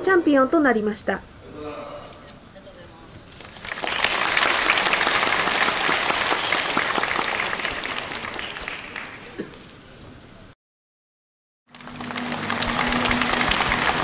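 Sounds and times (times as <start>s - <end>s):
crowd applauding: 3.5s - 9.6s, 11.7s - 14.0s.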